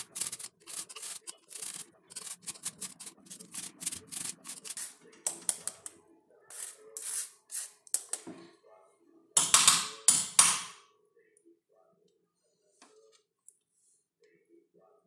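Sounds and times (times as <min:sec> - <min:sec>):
potato rasped on metal grater: 0:00.0 - 0:05.0.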